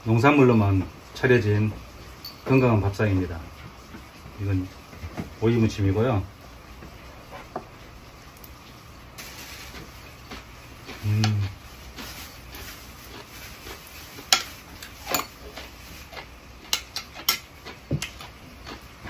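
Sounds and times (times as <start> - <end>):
person humming low: 11.0 - 11.5.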